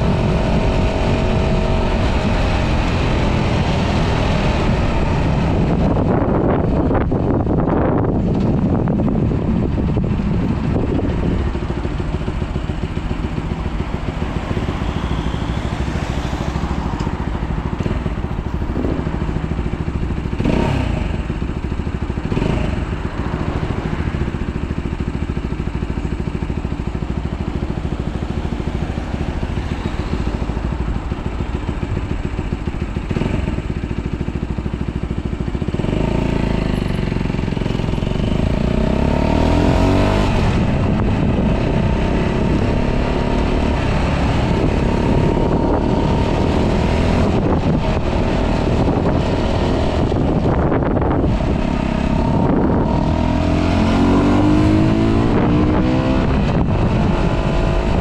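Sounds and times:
motorcycle accelerating: 0.0 - 58.0
motorcycle engine idling: 4.0 - 39.1, 47.2 - 52.8.

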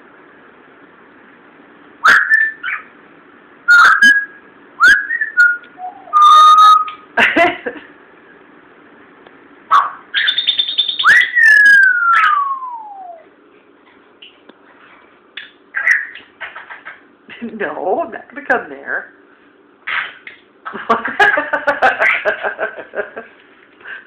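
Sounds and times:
parrot whistling and calling: 2.0 - 2.9, 3.7 - 7.1, 9.7 - 13.3, 15.4 - 16.9.

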